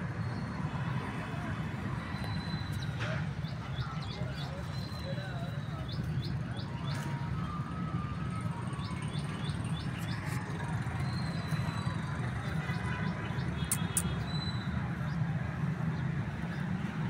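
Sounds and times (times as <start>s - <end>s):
small birds chirping: 13.4s - 14.6s.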